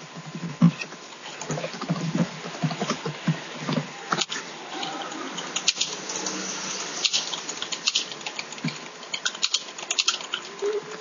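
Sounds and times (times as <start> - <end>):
steady background hiss: 0.0 - 11.0
computer keyboard typing: 7.0 - 11.0.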